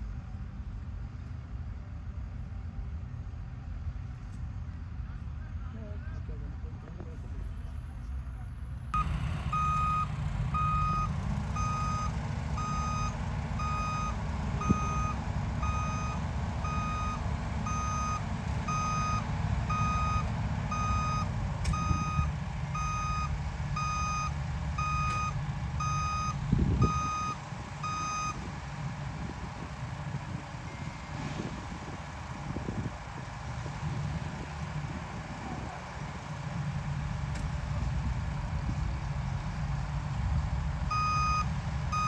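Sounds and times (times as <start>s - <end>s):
engine running: 0.0s - 42.0s
vehicle reverse alarm beeping: 8.9s - 28.5s, 30.6s - 31.1s, 40.9s - 42.0s.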